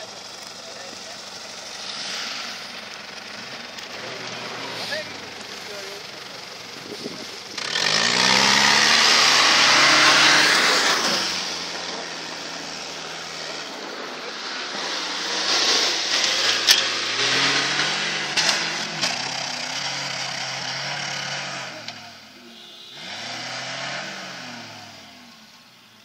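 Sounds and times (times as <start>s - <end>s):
off-road engines revving hard: 0.0s - 26.0s.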